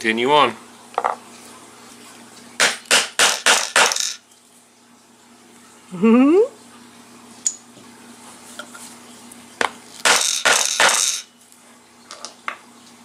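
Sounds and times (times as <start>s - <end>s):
metal punches clinking on stone: 10.0s - 11.3s.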